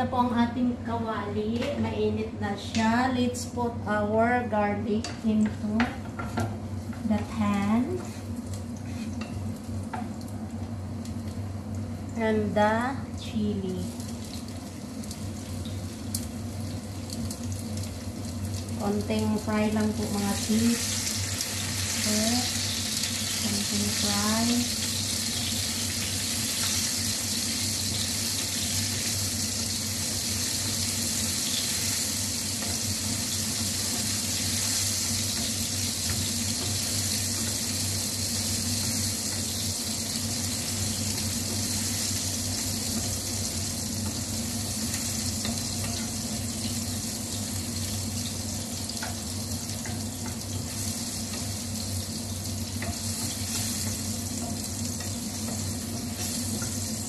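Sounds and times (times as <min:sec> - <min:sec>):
garlic sizzling in oil: 0:13.3 - 0:57.0.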